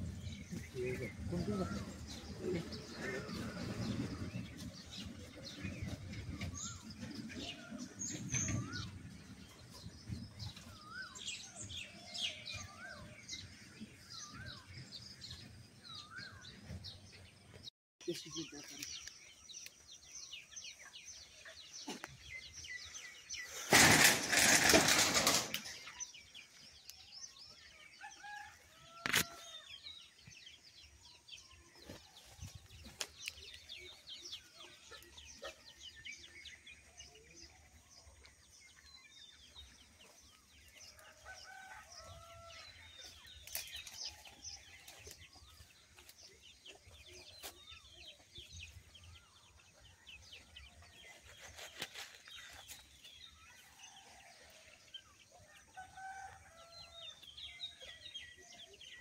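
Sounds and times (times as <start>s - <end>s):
birds chirping: 0.0s - 59.0s
loud rustling: 23.6s - 25.9s.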